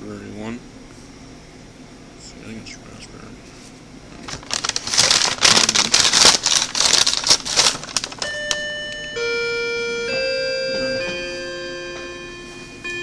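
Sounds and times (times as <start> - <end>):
crinkling and rustling at microphone: 3.4 - 8.4
electronic chime melody: 8.2 - 13.0.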